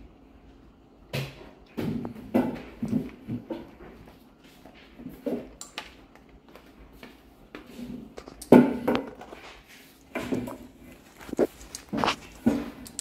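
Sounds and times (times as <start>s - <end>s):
dog crunching kibble: 11.0s - 13.0s.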